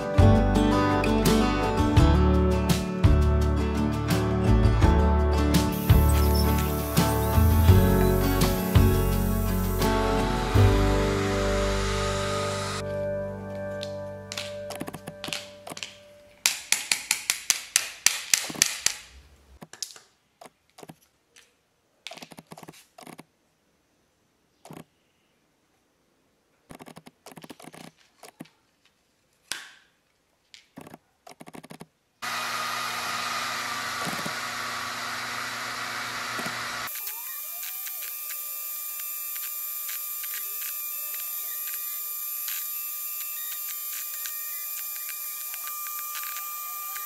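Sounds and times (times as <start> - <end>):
laser engraver whirring hiss: 5.7 - 12.8, 32.3 - 47.0.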